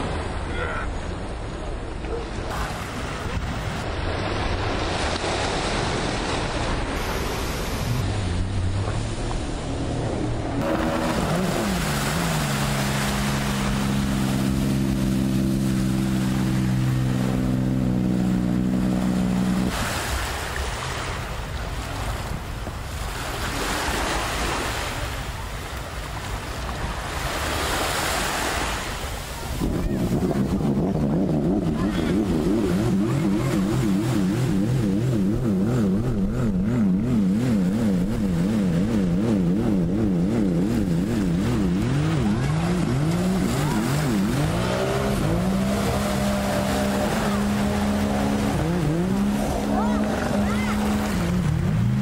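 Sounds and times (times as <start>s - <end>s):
jet ski engines droning: 0.0s - 25.6s, 26.2s - 52.0s
wind on microphone: 29.3s - 51.8s.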